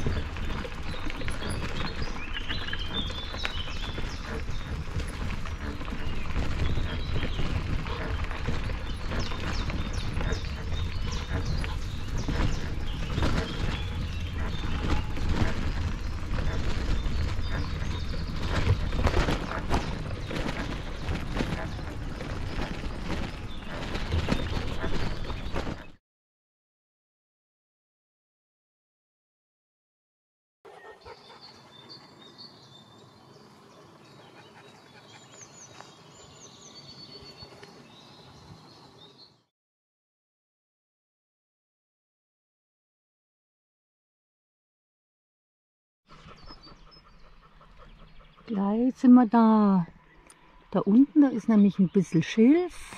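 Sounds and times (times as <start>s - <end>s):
birds singing: 0.0s - 26.0s, 30.7s - 39.5s, 46.1s - 52.9s
footsteps on a path: 0.0s - 26.0s, 34.4s - 38.7s.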